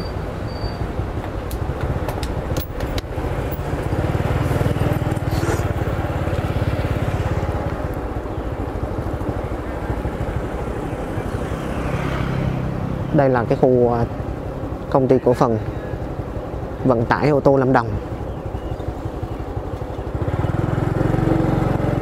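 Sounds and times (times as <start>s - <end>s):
motorbike engine running: 1.0s - 13.1s, 18.0s - 22.0s.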